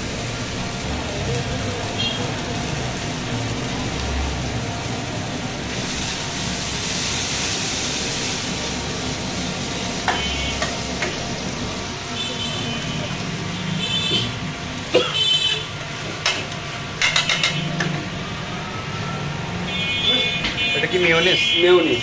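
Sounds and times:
griddle sizzling: 0.0s - 22.0s
metal spatula scraping and tapping: 16.2s - 18.0s.

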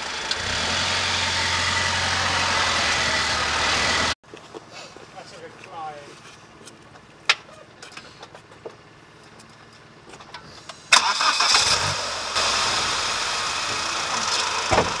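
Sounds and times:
car engine starting and running: 0.0s - 4.2s, 8.9s - 15.0s.

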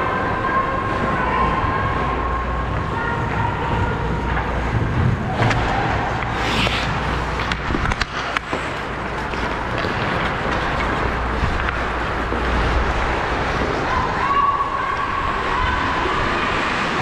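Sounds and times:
skates scraping on ice: 4.7s - 13.8s
hockey stick clacks: 5.3s - 12.4s.

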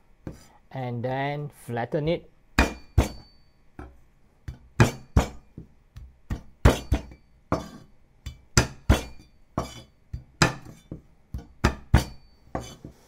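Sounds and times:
metallic ring of a blade: 2.7s - 3.6s, 12.0s - 12.8s.

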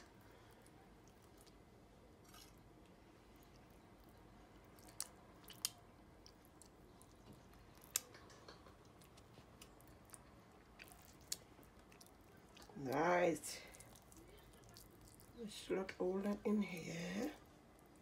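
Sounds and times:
wet squishing of hands: 3.2s - 15.6s.

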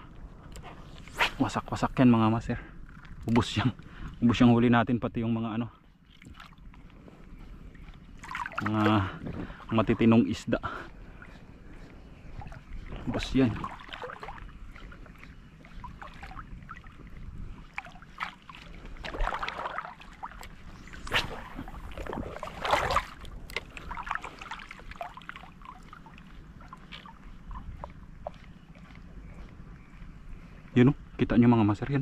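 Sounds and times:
water splashing and lapping: 5.8s - 30.7s.

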